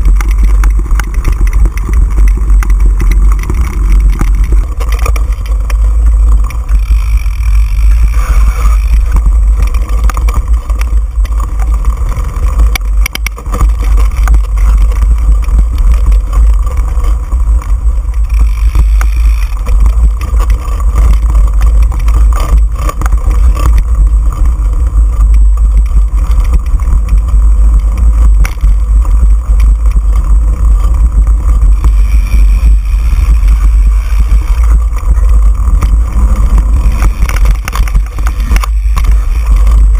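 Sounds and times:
bike knocks and rattles: 0.0s - 39.9s
tyres rolling on dirt trail: 0.0s - 39.9s
wind rumble on microphone: 0.0s - 39.9s.

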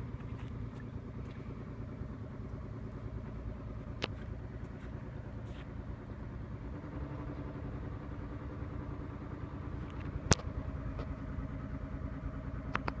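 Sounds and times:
engine running: 0.0s - 13.0s.

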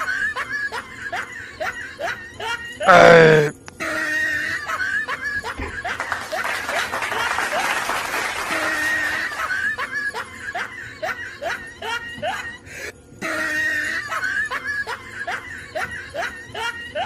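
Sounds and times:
person laughing: 0.0s - 3.5s.

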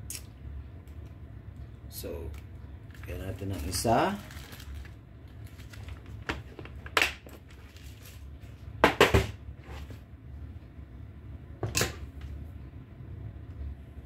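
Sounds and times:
small hard objects clattering: 2.9s - 8.3s.

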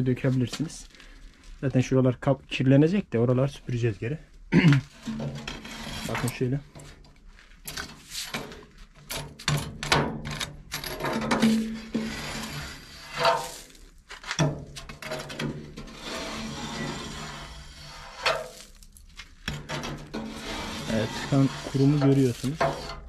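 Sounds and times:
metal scraper scraping inside boiler: 4.9s - 6.9s, 10.2s - 18.8s, 19.4s - 23.0s.

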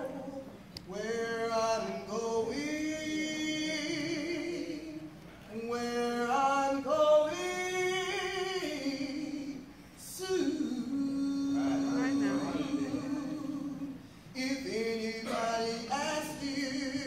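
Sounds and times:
choir singing a cappella: 10.4s - 14.0s.

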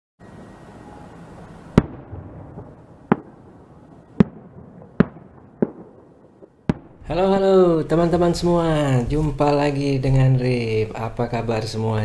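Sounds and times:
fireworks bangs: 1.7s - 9.4s.

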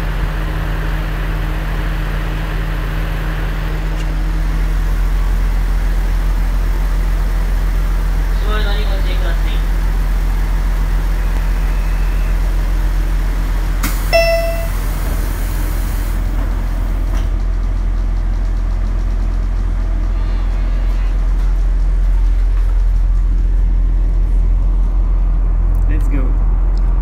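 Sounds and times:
short high tone: 14.1s - 14.8s.

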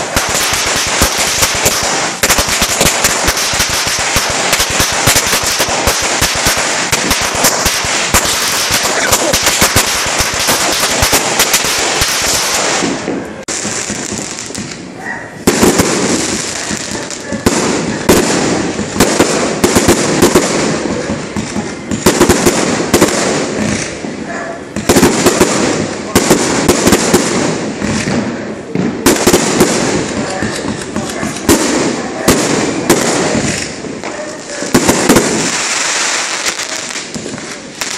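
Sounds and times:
firecrackers crackling and banging: 0.0s - 37.9s.

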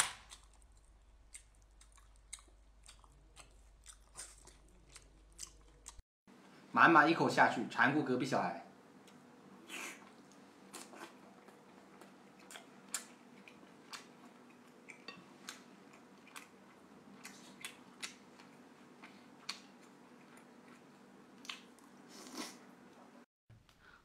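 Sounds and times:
person chewing with mouth clicks: 0.3s - 6.0s, 9.1s - 22.5s.

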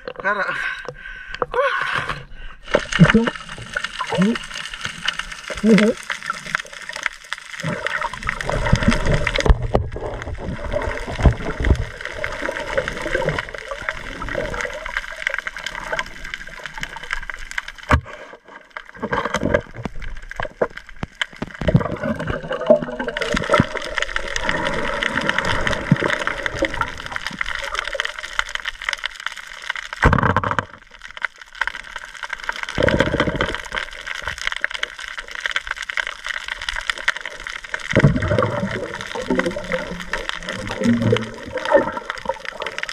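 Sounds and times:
muffled underwater gurgling: 0.0s - 4.8s, 5.4s - 6.4s, 37.3s - 42.9s.

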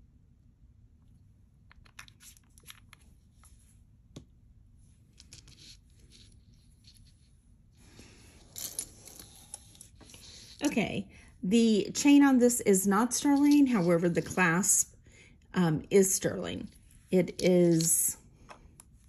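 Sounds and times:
rustling on a tabletop: 4.7s - 10.7s.

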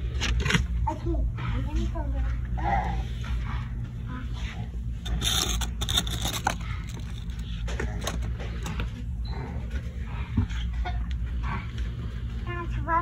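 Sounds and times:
steady low hum: 0.0s - 13.0s
scraping and rustling handling noise: 4.3s - 10.0s.

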